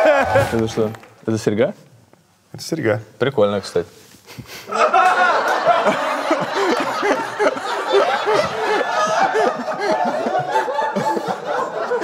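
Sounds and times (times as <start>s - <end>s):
men laughing: 0.0s - 1.0s, 4.5s - 12.0s.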